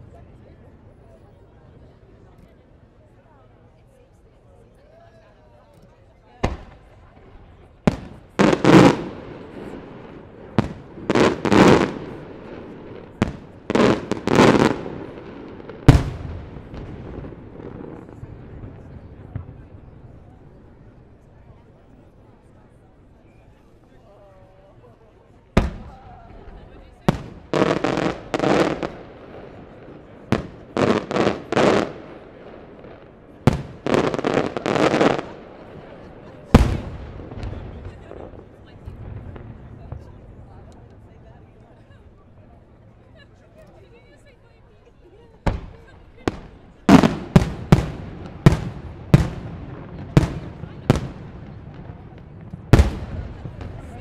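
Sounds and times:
fireworks bangs: 0:06.4 - 0:20.7, 0:25.6 - 0:41.2, 0:45.4 - 0:54.0
rumbling firework bursts: 0:06.4 - 0:21.0, 0:25.6 - 0:41.2, 0:45.4 - 0:54.0.

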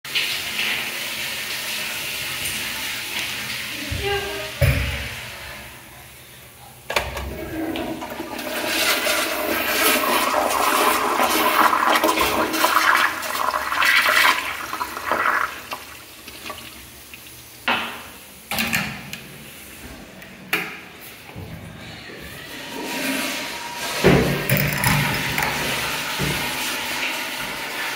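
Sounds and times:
water rushing through toilet bowl: 0:06.9 - 0:17.6, 0:22.3 - 0:27.9.

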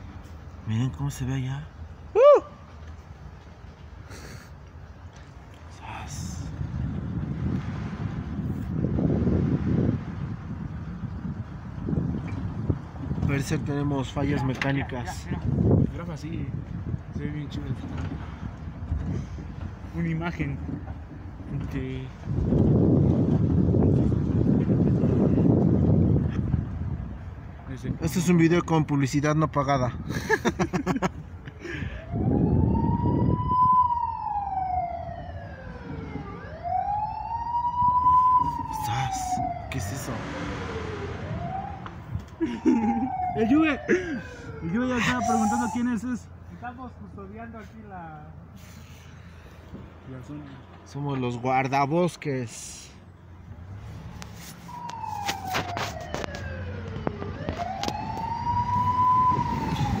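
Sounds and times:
vehicle rumbling on dirt road: 0:00.0 - 1:00.0
vehicle siren wailing: 0:31.9 - 0:46.2, 0:54.4 - 1:00.0.

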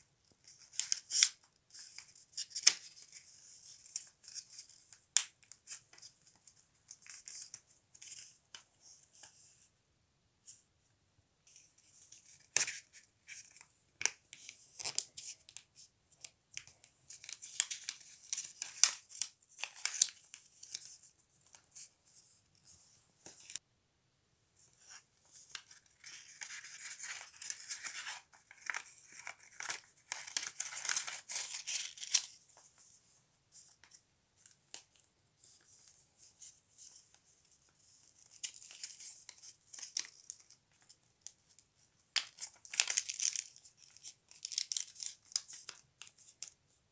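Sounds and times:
paper rustling and crinkling: 0:11.5 - 0:23.6, 0:24.7 - 0:46.6.

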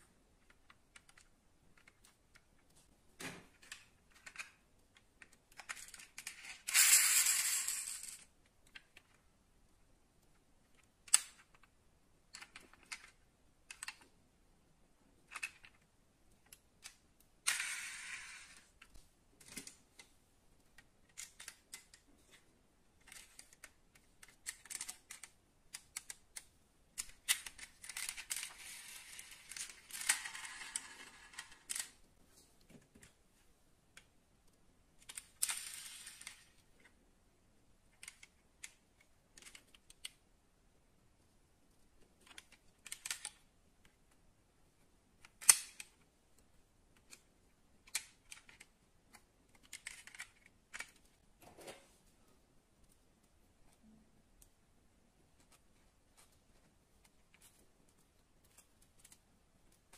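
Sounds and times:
clicks of handling model cars: 0:47.0 - 0:51.9.

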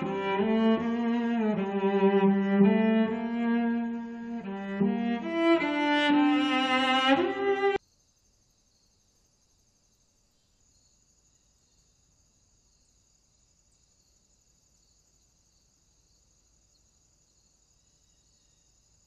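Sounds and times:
faint insect chirring: 0:07.7 - 0:19.0.

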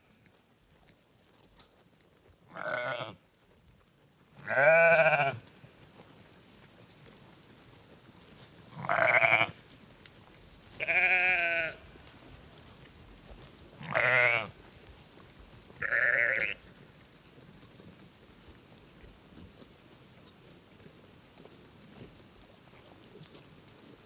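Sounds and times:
sheep bleating: 0:02.5 - 0:03.2, 0:04.4 - 0:05.4, 0:08.7 - 0:09.6, 0:10.8 - 0:11.9, 0:13.8 - 0:14.6, 0:15.8 - 0:16.6.

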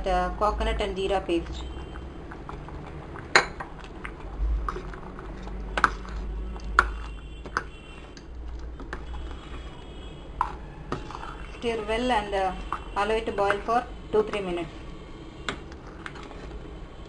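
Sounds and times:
spoon scraping metal pot: 0:10.4 - 0:13.7.

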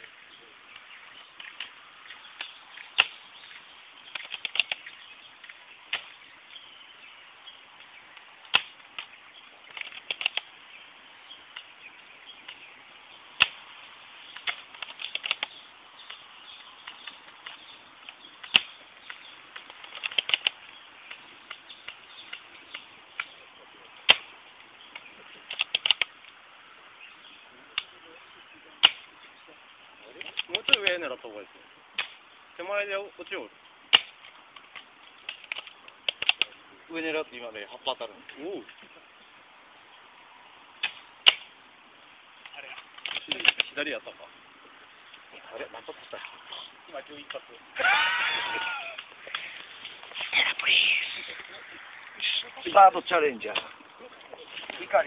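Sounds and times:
airsoft rifle snap: 0:35.3 - 0:36.5, 0:40.8 - 0:41.5.

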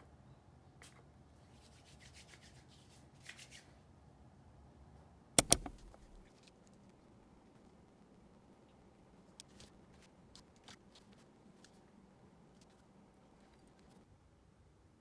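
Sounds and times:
sharp clicks: 0:05.4 - 0:06.3.

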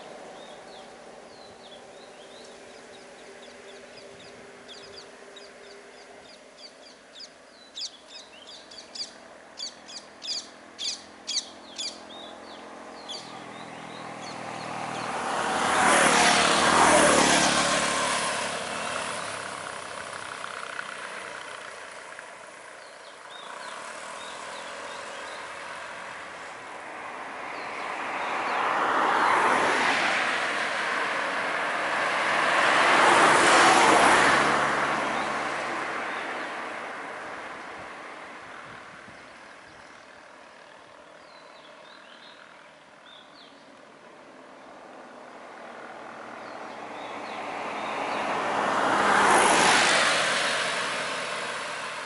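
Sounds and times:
low steady engine hum: 0:00.0 - 0:27.9
cars passing on road: 0:00.0 - 0:52.0.

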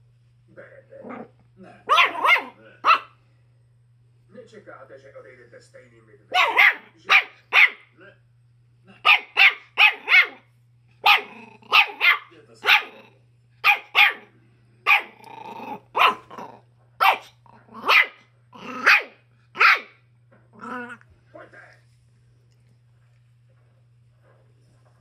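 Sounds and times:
dog barking: 0:01.8 - 0:03.2, 0:06.3 - 0:07.9, 0:09.0 - 0:15.2, 0:15.9 - 0:20.0.

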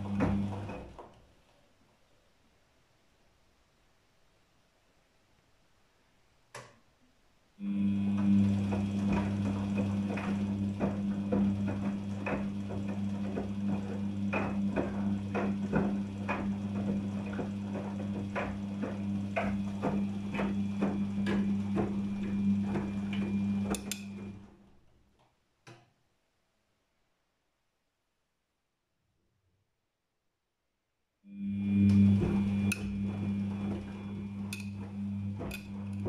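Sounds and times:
washing machine motor hum: 0:00.0 - 0:01.3, 0:07.6 - 0:25.0, 0:31.3 - 0:36.0.

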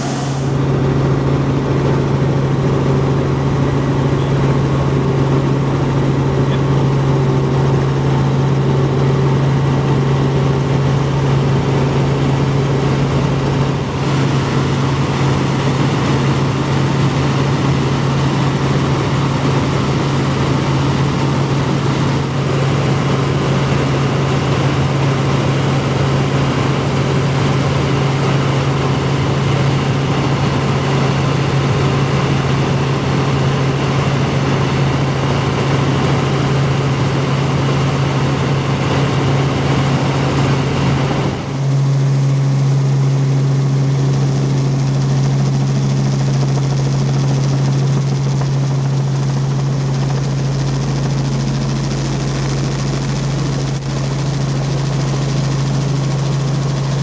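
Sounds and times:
engine and air rush: 0:00.0 - 0:02.1
helicopter rotor hum: 0:00.0 - 0:57.0.

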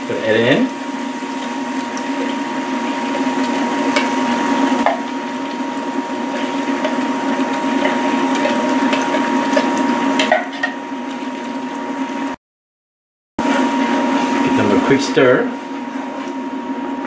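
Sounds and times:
sizzling bubbling: 0:00.0 - 0:12.4
thick liquid pouring into pot: 0:01.0 - 0:12.1.

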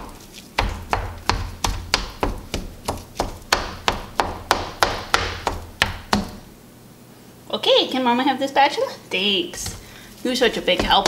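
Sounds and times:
spatula tapping skillet bottom: 0:10.4 - 0:11.0.

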